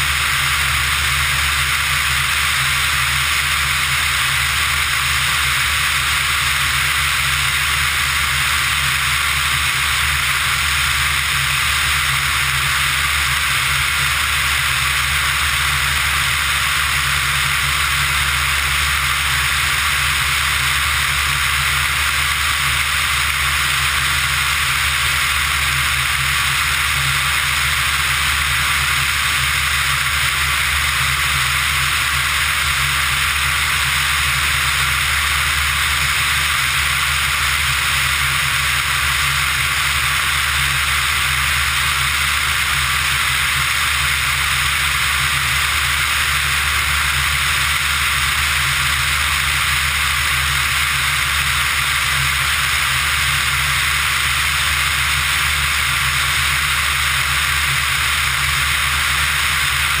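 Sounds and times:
aircraft engine and propeller drone: 0.0 - 60.0.

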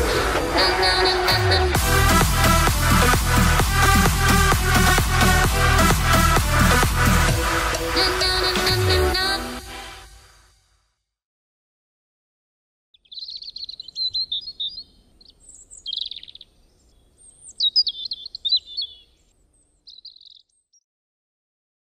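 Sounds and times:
songbird singing: 12.9 - 20.9.

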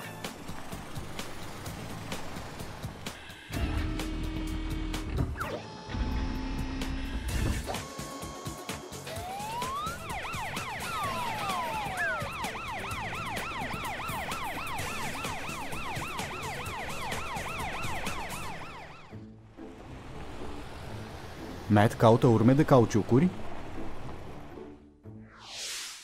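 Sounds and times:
cartoon siren wailing: 9.1 - 19.1.

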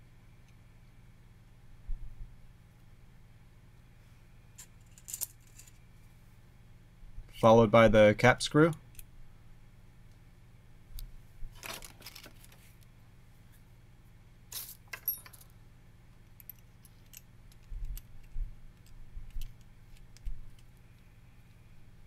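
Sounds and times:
small metal parts clinking: 4.6 - 5.8, 11.6 - 12.6, 14.5 - 15.6, 16.2 - 20.7
light handling ticks and bumps: 16.2 - 21.7.

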